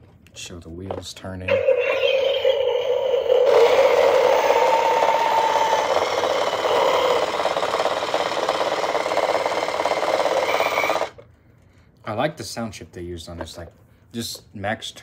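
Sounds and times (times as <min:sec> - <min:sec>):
electronic engine sound from toy speaker: 0:01.5 - 0:11.2
toy car motor rattling: 0:01.5 - 0:11.2.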